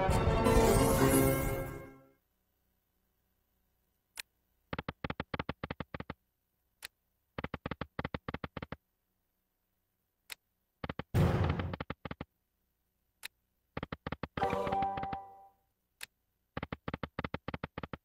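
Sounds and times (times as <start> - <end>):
slot machine click: 14.4 - 15.4.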